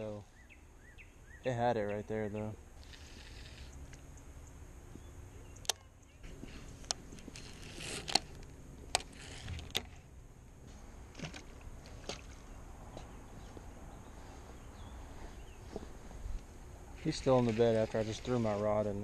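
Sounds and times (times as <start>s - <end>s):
fishing reel clicking: 6.8s - 9.9s
rod splashing into water: 11.2s - 12.4s.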